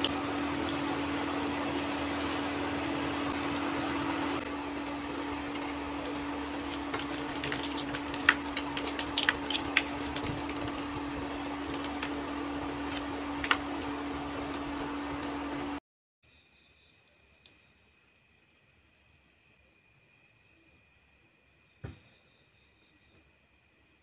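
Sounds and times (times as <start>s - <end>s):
hot oil sizzling: 0.0s - 15.5s.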